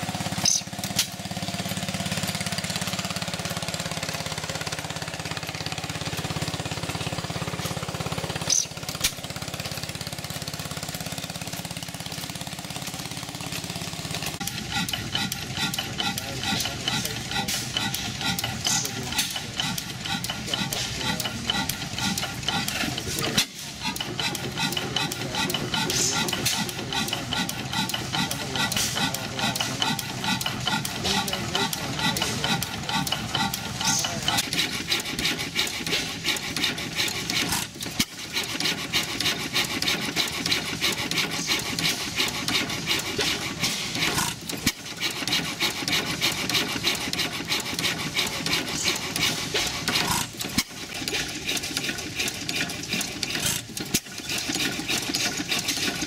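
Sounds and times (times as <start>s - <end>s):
stationary gas engines clattering: 0.0s - 56.0s.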